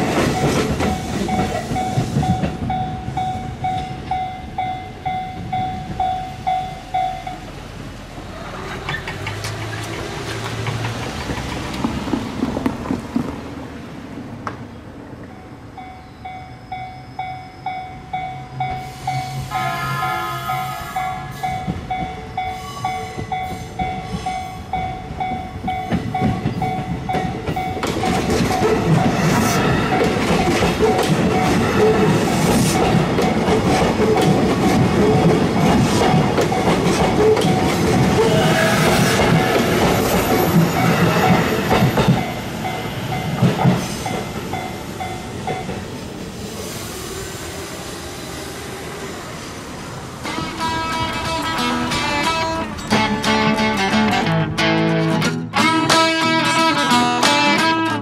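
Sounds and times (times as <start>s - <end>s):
railroad crossing bell ringing: 0.0s - 7.7s, 15.2s - 33.5s, 36.1s - 45.9s, 50.2s - 53.6s
train rumble: 0.0s - 54.4s
train rushing past: 0.0s - 55.6s.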